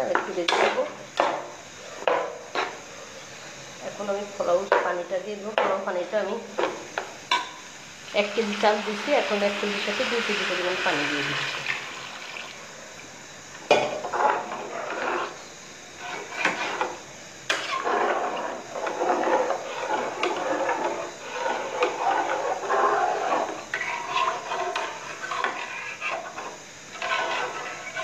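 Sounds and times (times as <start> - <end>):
metal spoon scraping pot: 17.5 - 28.0.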